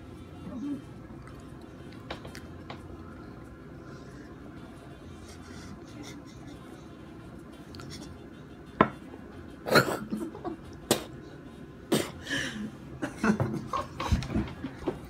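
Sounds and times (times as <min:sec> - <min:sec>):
laughter: 0:05.8 - 0:06.8, 0:09.9 - 0:10.7, 0:13.0 - 0:14.6
man coughing and gagging: 0:09.6 - 0:11.1, 0:11.9 - 0:12.4.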